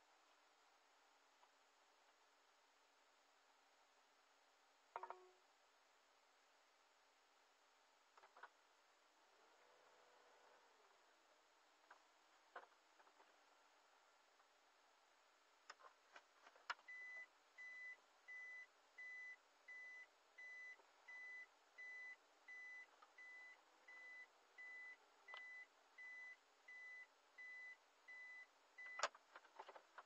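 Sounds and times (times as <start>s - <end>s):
reverse warning beep: 16.9s - 29.0s.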